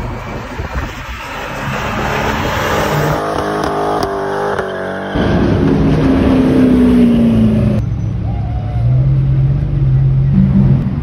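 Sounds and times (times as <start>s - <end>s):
car engine and exhaust: 0.0s - 11.0s
supercar engine steady note: 9.4s - 11.0s.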